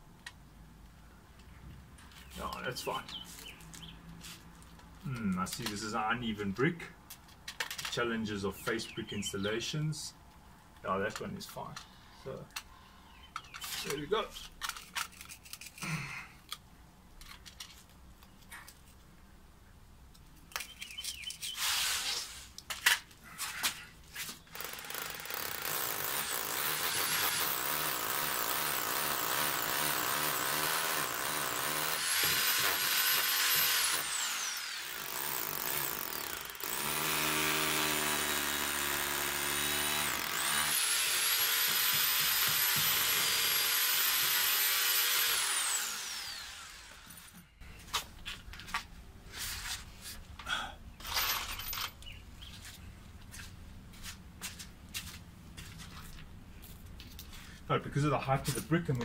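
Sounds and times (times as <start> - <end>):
electric drill boring into brick: 24.5 - 47.4.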